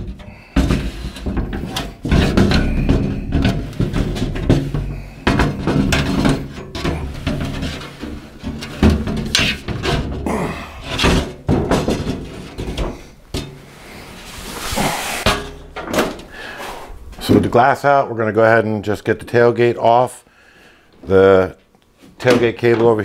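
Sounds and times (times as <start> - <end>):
knocks and thunks on glass: 0.0 - 7.8
scraping of window glass: 0.0 - 15.5.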